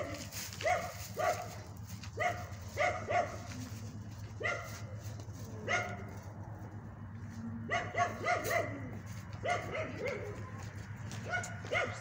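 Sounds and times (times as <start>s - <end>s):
dog barking: 0.0s - 3.6s, 4.4s - 4.9s, 5.6s - 6.2s, 7.7s - 10.5s, 11.2s - 12.0s.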